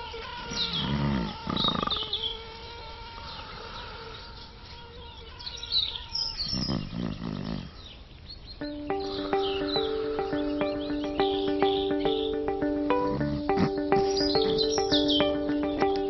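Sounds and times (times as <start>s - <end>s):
insect whine: 0.0s - 7.1s
sleeping person's low vocal sounds: 0.6s - 2.1s
high chirps: 8.6s - 16.0s.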